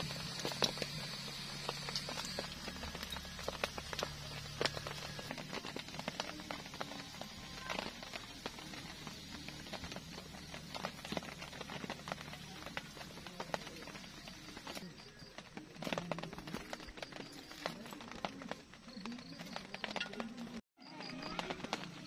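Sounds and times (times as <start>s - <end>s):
rain pattering on tent: 0.0s - 22.0s.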